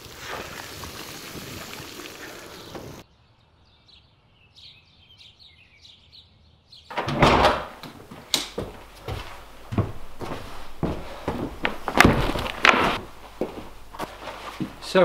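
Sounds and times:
bicycle tyres hissing on wet road: 0:00.0 - 0:03.0
birds chirping: 0:02.1 - 0:07.0.

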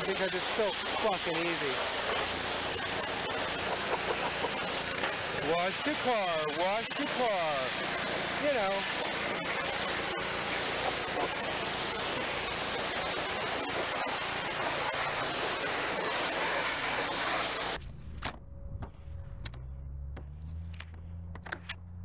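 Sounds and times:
water spraying onto car: 0:00.0 - 0:17.8
low steady hum: 0:17.8 - 0:22.0.

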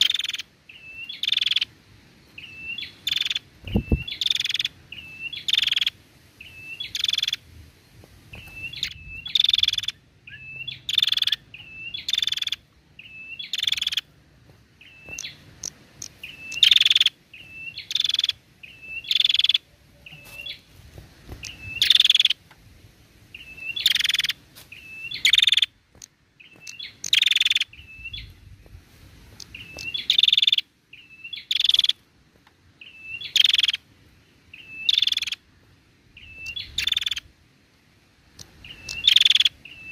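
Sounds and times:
bird calling with chirps: 0:00.0 - 0:07.5, 0:08.3 - 0:14.2, 0:14.8 - 0:20.7, 0:21.3 - 0:22.4, 0:23.3 - 0:28.7, 0:29.3 - 0:32.0, 0:32.7 - 0:37.3, 0:38.4 - 0:39.9.

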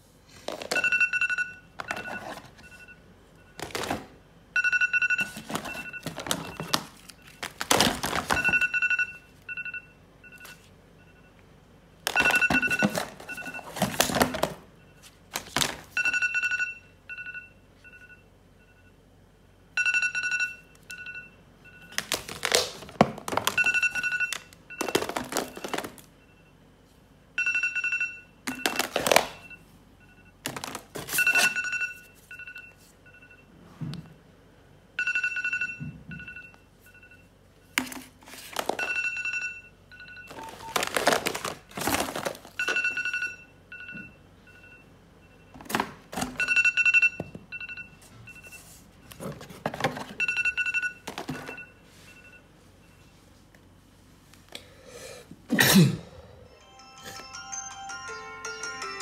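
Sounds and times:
phone alarm beeping: 0:00.7 - 0:03.6, 0:04.6 - 0:07.4, 0:08.3 - 0:11.4, 0:12.1 - 0:13.8, 0:16.0 - 0:19.0, 0:19.8 - 0:22.0, 0:23.5 - 0:26.6, 0:27.4 - 0:30.4, 0:31.1 - 0:33.5, 0:35.0 - 0:37.3, 0:38.8 - 0:40.9, 0:42.6 - 0:45.6, 0:46.3 - 0:48.7, 0:50.1 - 0:53.1
phones clattering in a box: 0:22.0 - 0:26.0, 0:40.3 - 0:43.1.

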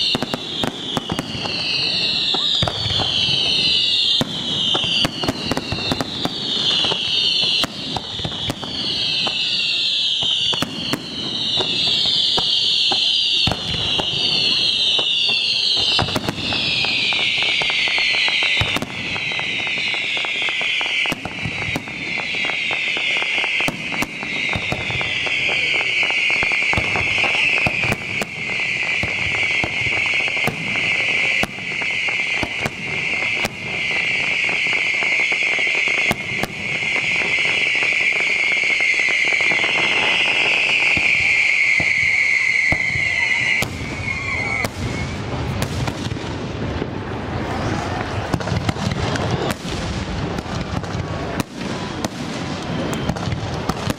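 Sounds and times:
shrill high-pitched whistle: 0:00.0 - 0:45.4
firework bangs: 0:00.0 - 0:53.9
fireworks crackling: 0:00.0 - 0:53.9.

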